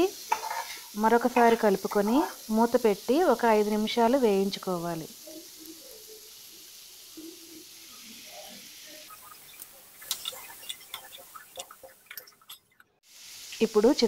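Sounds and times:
vegetables sizzling in a pan: 0.0s - 14.0s
spatula scraping a pan: 0.2s - 2.2s, 7.2s - 13.0s.

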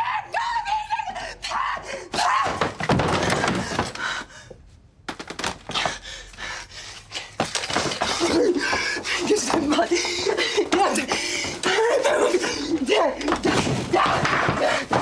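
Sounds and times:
body crashing against wall: 2.2s - 4.0s.

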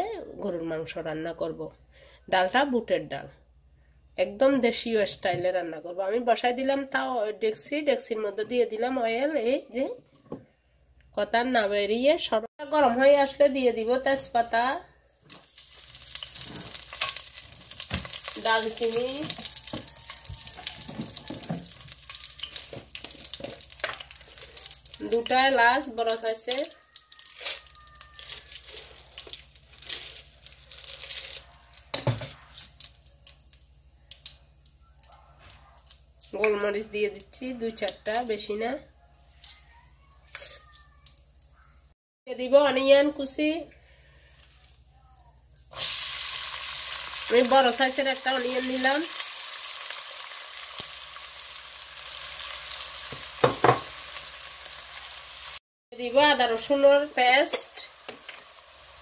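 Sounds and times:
spices sizzling in hot oil: 15.3s - 34.8s, 45.7s - 59.0s.

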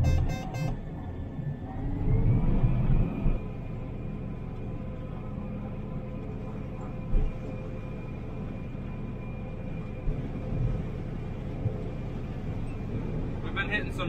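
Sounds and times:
high whining tones: 0.0s - 0.8s
combine harvester drone: 0.0s - 14.0s.

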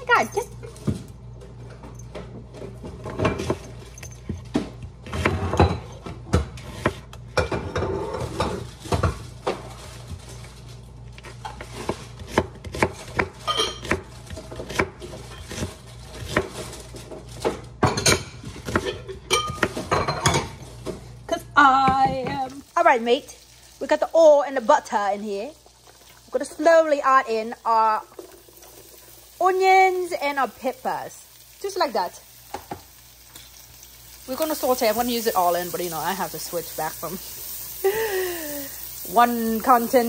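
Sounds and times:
knife chopping on wooden board: 11.8s - 16.6s.

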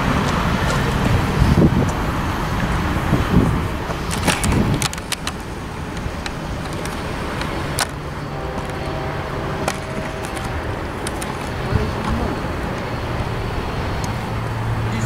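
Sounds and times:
freight train cars rolling on rails: 0.0s - 15.0s.

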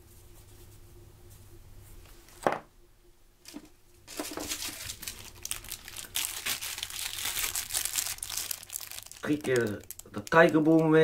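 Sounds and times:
plastic packaging crinkling: 3.5s - 11.0s.

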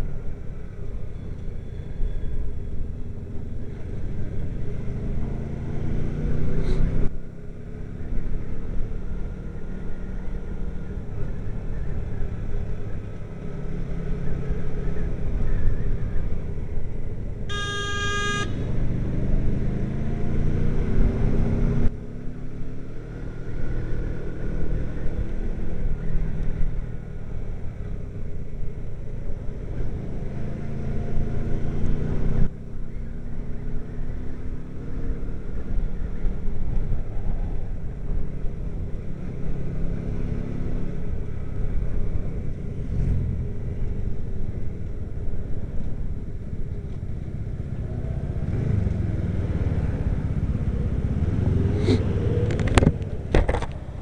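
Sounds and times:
wind and road noise: 0.0s - 54.0s
motorcycle engine accelerating: 3.3s - 16.4s, 17.5s - 28.0s, 29.3s - 54.0s
vehicle horn: 17.5s - 18.8s.

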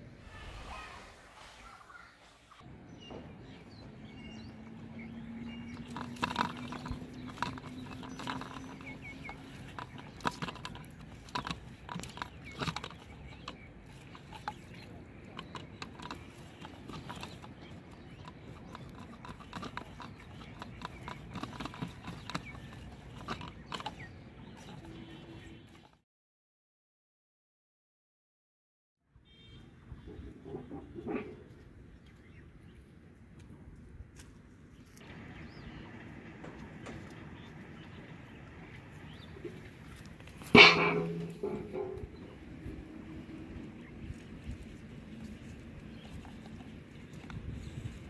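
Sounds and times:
faint chirps: 0.1s - 2.6s.

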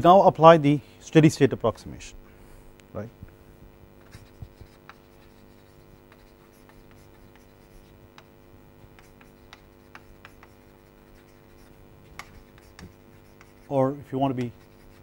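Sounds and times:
chalk scratching on chalkboard: 4.0s - 15.0s.

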